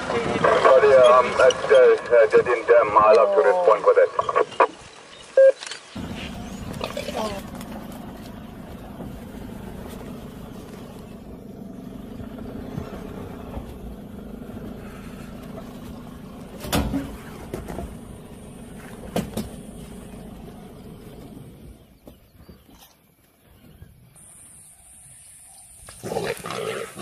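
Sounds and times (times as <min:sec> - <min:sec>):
vehicle engine idling: 0:06.0 - 0:22.4.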